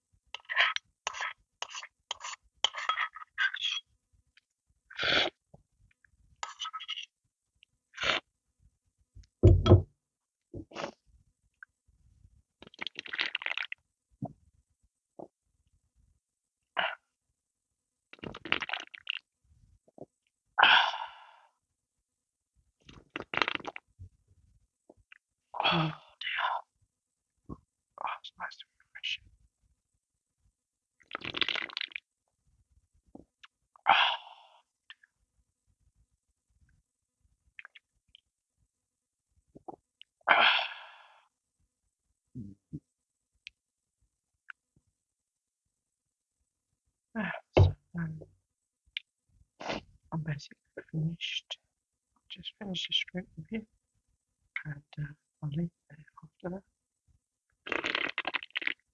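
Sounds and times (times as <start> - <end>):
person gulping from a can: 12.6 - 13.8, 22.9 - 23.8, 31.0 - 32.0, 57.6 - 58.8
low throat sounds: 42.4 - 42.8.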